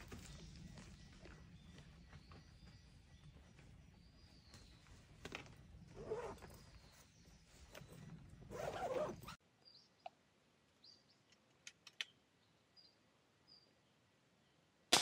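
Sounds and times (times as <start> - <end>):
bird chirps: 0.0 - 10.2
faint clicks: 11.3 - 12.2.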